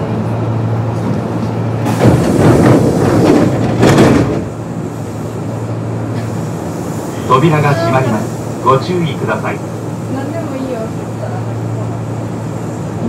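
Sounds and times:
electric train hum: 0.0s - 13.0s
air rush of sliding doors: 0.3s - 13.0s.

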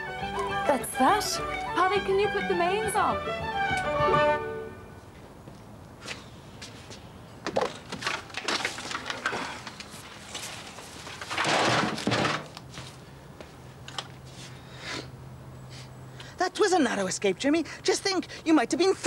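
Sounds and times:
objects knocking and rustling: 7.4s - 12.8s.

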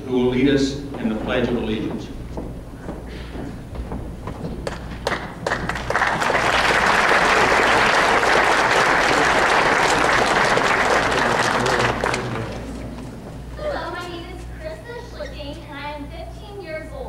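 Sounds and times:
audience applauding: 4.6s - 13.5s.

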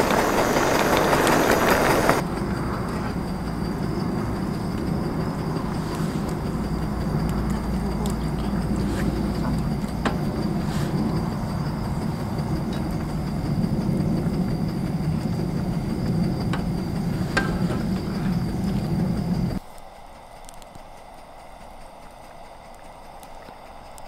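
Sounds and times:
campfire rumbling and crackling: 0.0s - 24.0s.

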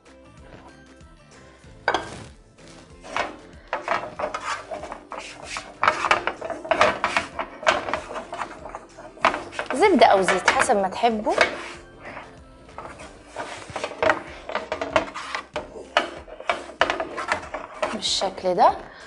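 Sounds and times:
hands rubbing butter on baking sheet: 3.0s - 18.4s.

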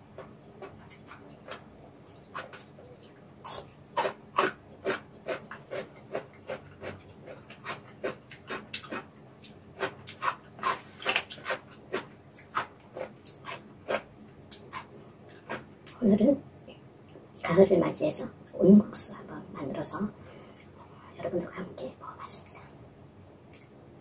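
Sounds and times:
person chewing with mouth smacks: 0.2s - 15.7s.

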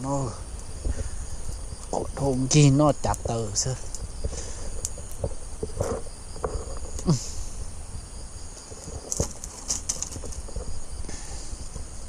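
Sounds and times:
insects chirping: 0.0s - 12.0s.

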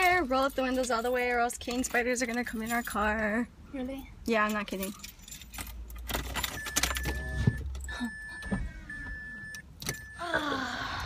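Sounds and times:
keys jangling: 4.4s - 7.0s
car warning chime beeping: 6.4s - 10.7s.

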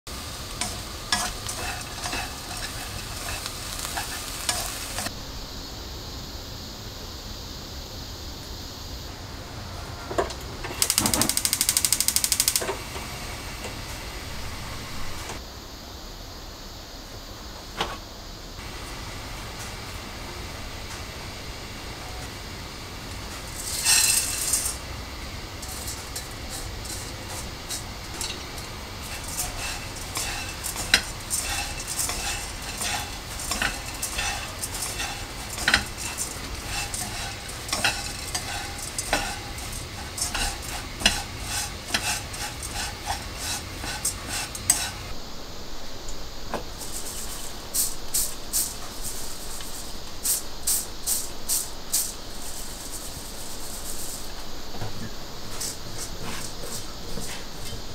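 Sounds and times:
anchovies rattling in pan: 0.0s - 5.1s, 10.7s - 15.4s, 18.6s - 45.2s, 46.7s - 57.9s
mesh sieve rasping: 0.0s - 5.1s, 10.7s - 12.8s, 18.6s - 45.2s, 46.7s - 54.4s
anchovies poured into pan: 0.1s - 5.1s, 22.9s - 45.2s.

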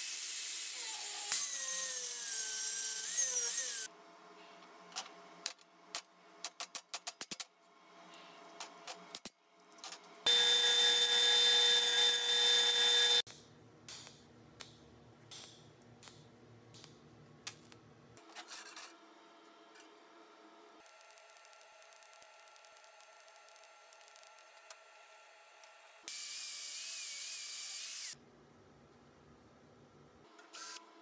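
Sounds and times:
welding arc hissing buzz: 10.3s - 13.3s.

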